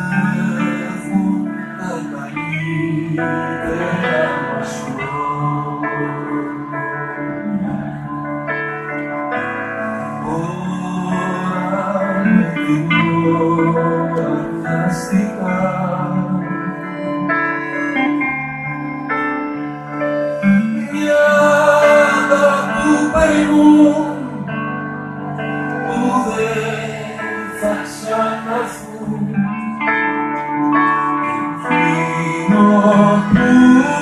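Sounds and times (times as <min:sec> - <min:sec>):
live band with keyboard and guitar: 0:00.0 - 0:34.0
person singing: 0:00.0 - 0:34.0.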